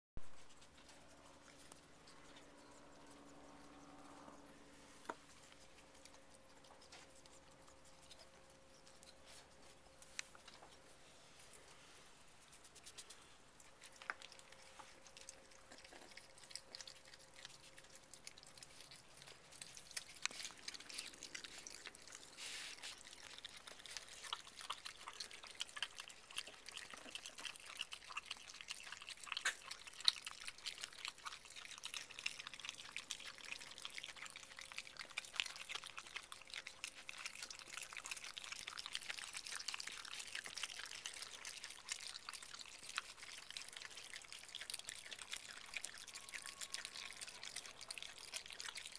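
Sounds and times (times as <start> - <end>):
animals chewing wet food: 0.2 - 48.9.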